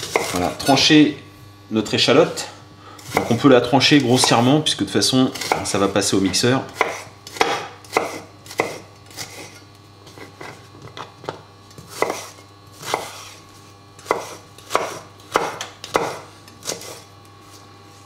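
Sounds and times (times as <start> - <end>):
knife chopping on wooden board: 0.0 - 0.8, 3.0 - 4.5, 5.3 - 13.4, 14.0 - 17.6.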